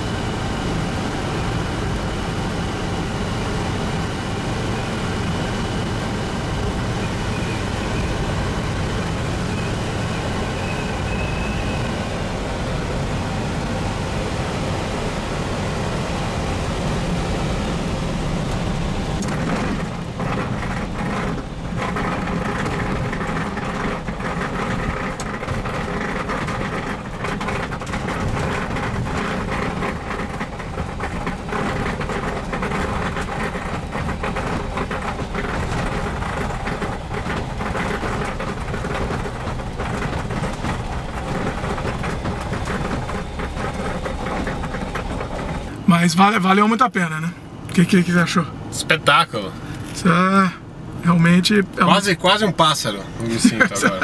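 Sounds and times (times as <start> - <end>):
wheels rattling over grass: 0.0 - 50.2
light aircraft engine in cockpit: 0.0 - 54.0.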